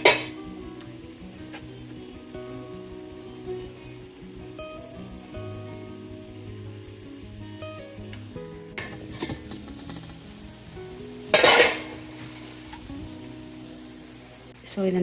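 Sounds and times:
cookware and utensils clinking: 0:00.0 - 0:00.5, 0:08.8 - 0:10.6, 0:11.2 - 0:13.1
background music: 0:00.0 - 0:15.0.

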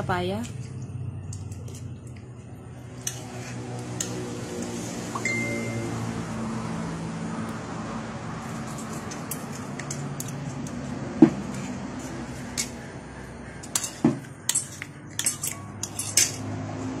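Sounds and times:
cutlery clinking on a plate: 0:13.6 - 0:16.4.

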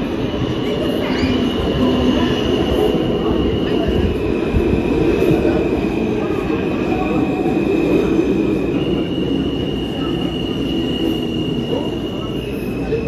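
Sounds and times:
subway train rumble: 0:00.0 - 0:13.0.

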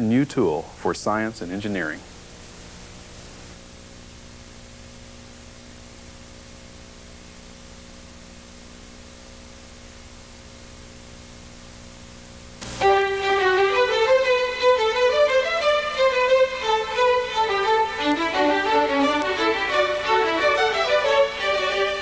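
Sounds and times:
low hum and hiss: 0:00.0 - 0:22.0
violin melody with accompaniment: 0:12.8 - 0:22.0.

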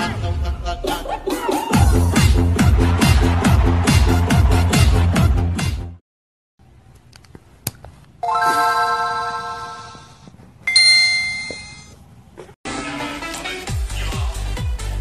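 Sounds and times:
background music: 0:00.0 - 0:06.0
two-tone ding-dong chime: 0:10.7 - 0:12.0.

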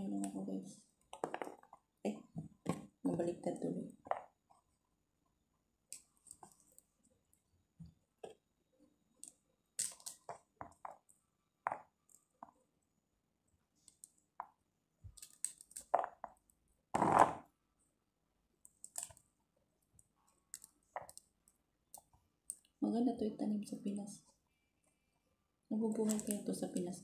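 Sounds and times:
small clicks and crackles: 0:09.2 - 0:12.6, 0:13.8 - 0:16.6, 0:18.6 - 0:22.8, 0:25.9 - 0:27.0.

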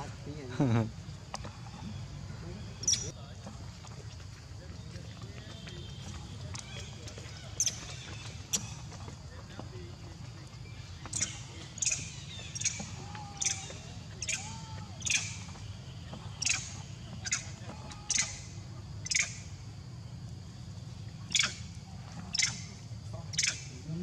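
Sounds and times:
lower arching animal calls: 0:11.1 - 0:19.6, 0:21.2 - 0:24.0
high-pitched animal chirps: 0:13.4 - 0:15.4, 0:16.4 - 0:17.5, 0:18.1 - 0:18.4, 0:19.0 - 0:19.4, 0:21.3 - 0:21.6, 0:22.3 - 0:22.7, 0:23.3 - 0:23.7.

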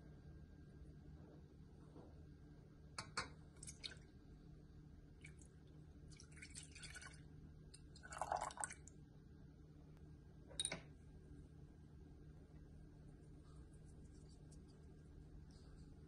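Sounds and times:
milk splashing into saucepan: 0:05.2 - 0:08.9.

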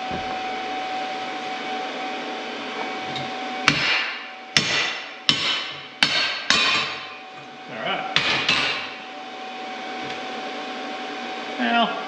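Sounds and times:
steady whirring hum: 0:00.0 - 0:12.0.

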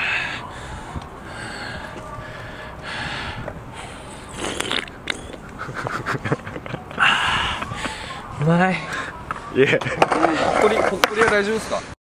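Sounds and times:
person sipping from a can: 0:04.3 - 0:05.3.

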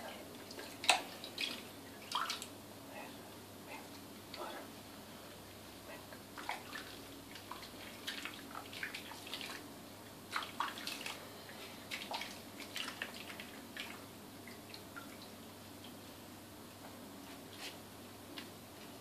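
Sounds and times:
hands splashing soapy water: 0:10.3 - 0:11.2.

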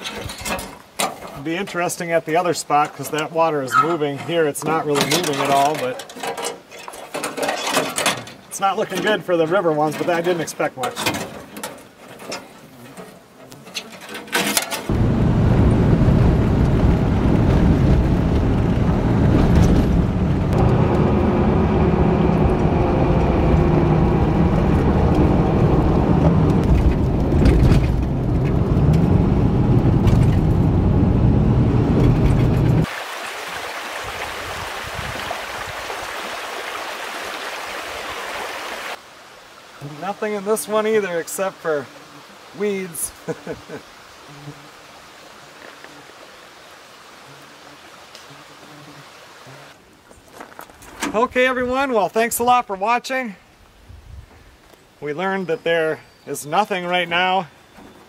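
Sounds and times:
creek running: 0:00.0 - 0:15.2, 0:32.1 - 0:53.9
truck engine and tyres rumbling: 0:14.8 - 0:32.9.

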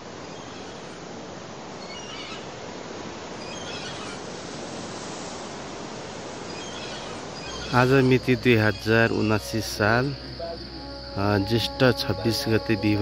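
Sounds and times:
steady rushing outdoor noise: 0:00.0 - 0:11.2
faint high chirps: 0:06.5 - 0:13.0.

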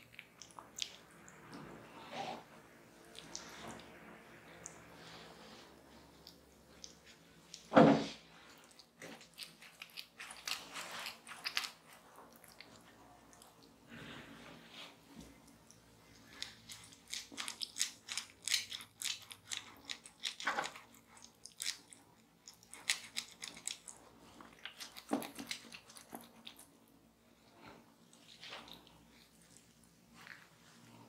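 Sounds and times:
wet crackling of fruit pulp on skin: 0:08.6 - 0:13.6.

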